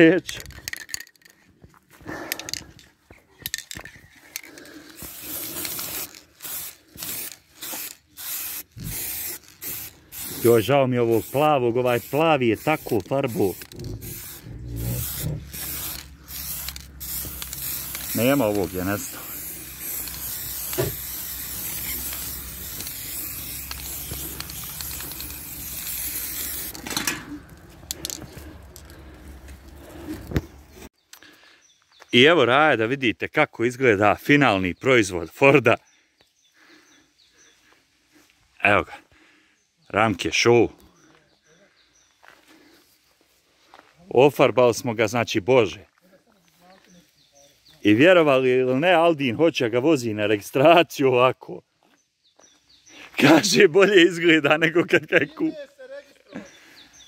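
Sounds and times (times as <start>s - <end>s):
clicks and rattles: 0.2s - 1.4s, 3.4s - 4.8s
aerosol spray can hissing: 5.0s - 26.9s.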